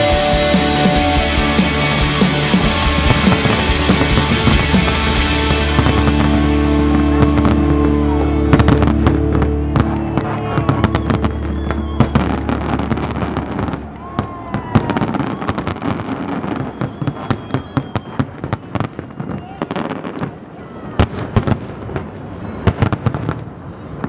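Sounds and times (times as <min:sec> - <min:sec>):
held music chord: 0:00.0 - 0:14.0
fireworks bangs and crackles: 0:00.0 - 0:24.0.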